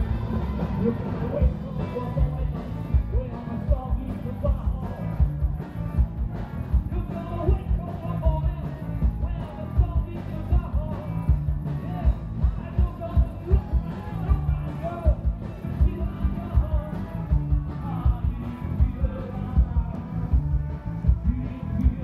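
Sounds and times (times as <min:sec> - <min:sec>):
bass drum beat: 0:00.0 - 0:22.0.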